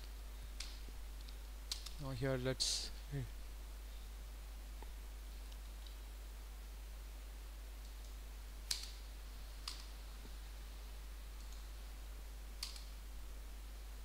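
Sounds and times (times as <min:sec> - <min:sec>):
computer mouse clicking: 0:00.6 - 0:02.0, 0:07.8 - 0:09.0, 0:09.6 - 0:10.0, 0:11.4 - 0:11.7, 0:12.6 - 0:13.0.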